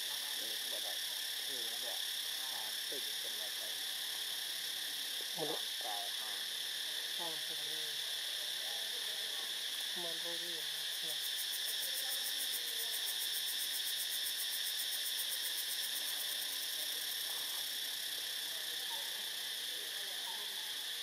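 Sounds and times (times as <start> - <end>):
high pulsing insect trill: 0.0 - 21.0
insect chorus: 0.0 - 21.0.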